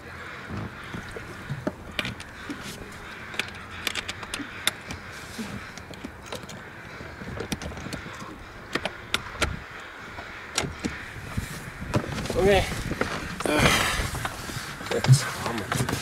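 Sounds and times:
clicks and knocks of handled gear: 1.5s - 9.5s.

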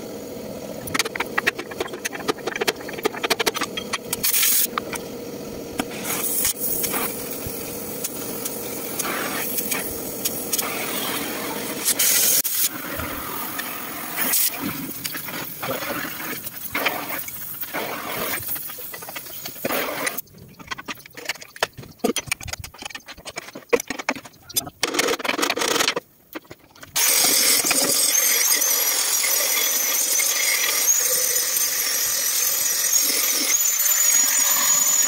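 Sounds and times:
cutting torch hissing: 0.0s - 20.2s
hand tool scraping metal: 14.3s - 28.8s.

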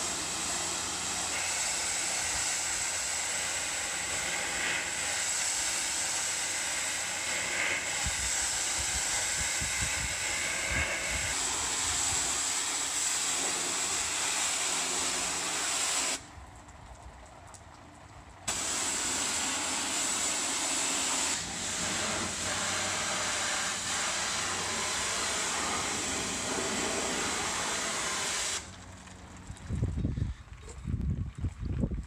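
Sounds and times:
pressure washer spraying: 0.0s - 16.2s, 18.5s - 28.7s
wind gusts on microphone: 8.0s - 11.4s, 29.5s - 32.0s.

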